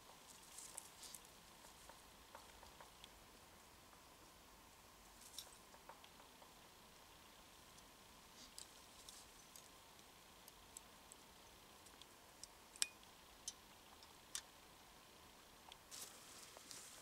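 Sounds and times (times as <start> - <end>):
faint clicks and ticks: 0.0 - 3.2, 5.2 - 7.9, 8.5 - 14.7.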